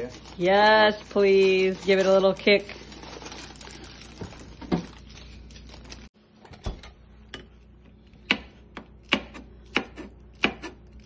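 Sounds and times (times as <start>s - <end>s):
knife chopping on plastic board: 8.2s - 10.8s.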